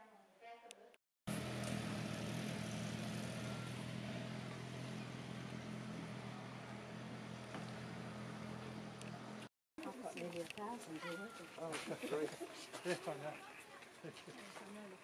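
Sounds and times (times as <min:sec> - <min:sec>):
low engine hum: 0:01.3 - 0:09.5.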